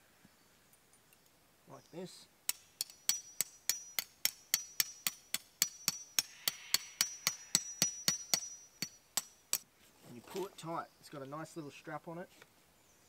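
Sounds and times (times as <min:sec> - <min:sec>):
hammer striking metal tent peg: 0:02.5 - 0:09.7.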